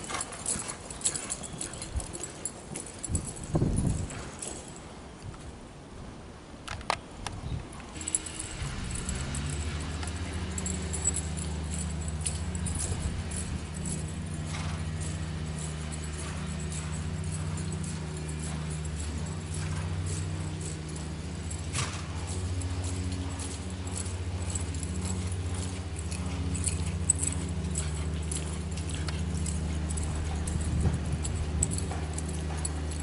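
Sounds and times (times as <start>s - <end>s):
bridle and saddle tack jingling: 0.0s - 5.2s, 7.7s - 33.0s
steady low hum: 7.6s - 33.0s.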